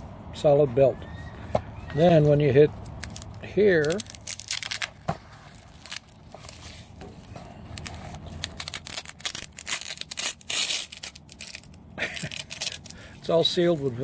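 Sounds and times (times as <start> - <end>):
velcro ripping open: 2.8 - 6.8, 7.7 - 13.2.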